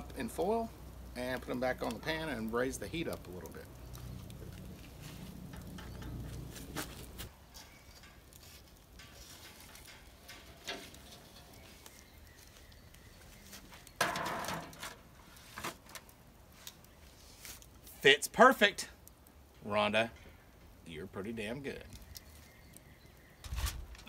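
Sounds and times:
rustling clatter on metal pan: 0:03.9 - 0:16.1
metal clinks on grill grate: 0:05.3 - 0:12.3, 0:13.9 - 0:15.0.

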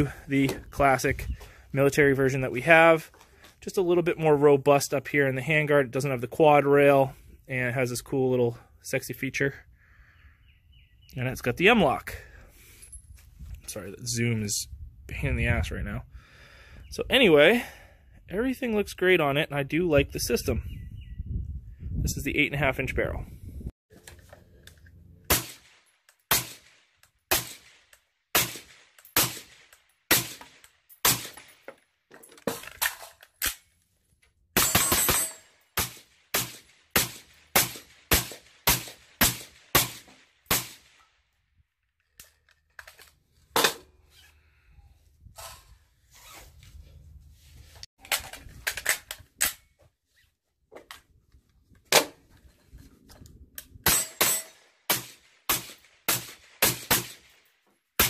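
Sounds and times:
suppressed rifle shots: 0:25.3 - 0:27.8.

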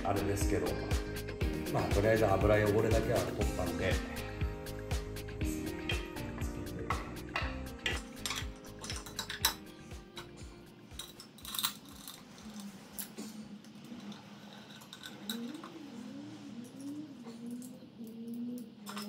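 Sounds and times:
background music: 0:00.0 - 0:13.0
metal parts clinking: 0:07.8 - 0:09.7, 0:10.9 - 0:13.2, 0:13.9 - 0:15.7, 0:18.8 - 0:19.0.

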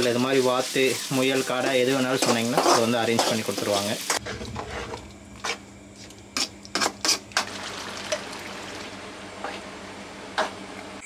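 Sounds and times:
metal spoon scraping a pan: 0:01.4 - 0:07.5.

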